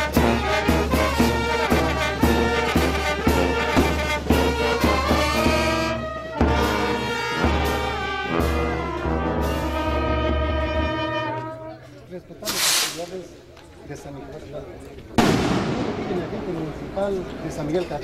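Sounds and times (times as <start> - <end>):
brass band playing: 0.0 - 13.1.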